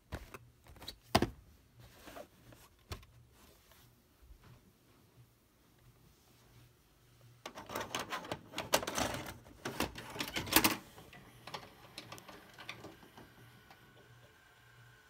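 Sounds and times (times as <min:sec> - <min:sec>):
plastic clicks and clatter: 0:07.4 - 0:13.3.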